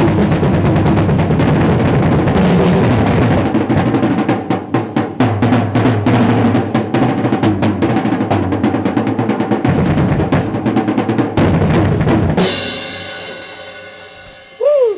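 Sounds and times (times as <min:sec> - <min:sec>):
drum kit solo: 0:00.0 - 0:14.9.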